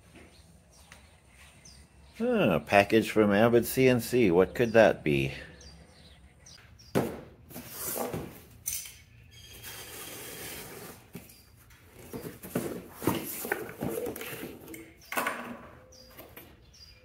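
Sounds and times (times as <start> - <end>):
cardboard and paper rustling: 10.7 - 14.7.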